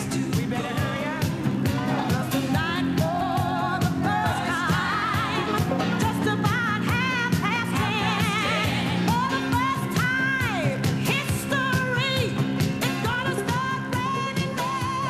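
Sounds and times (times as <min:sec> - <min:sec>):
pop song over loudspeakers: 0:00.0 - 0:15.0.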